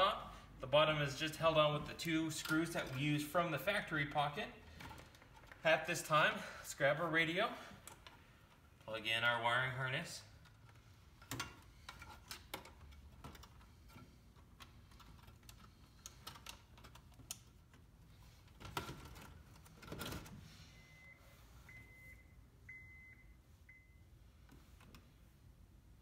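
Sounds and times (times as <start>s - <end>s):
plastic and metal clicking and rattling: 4.7s - 5.7s, 10.4s - 20.4s.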